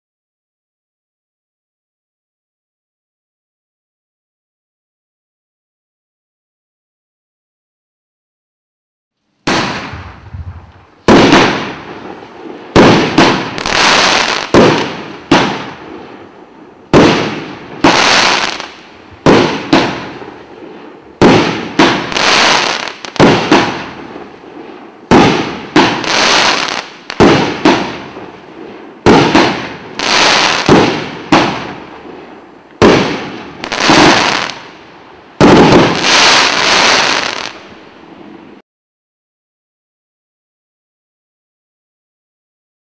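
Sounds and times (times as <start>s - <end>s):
firework bangs with crackle: 9.4s - 38.6s.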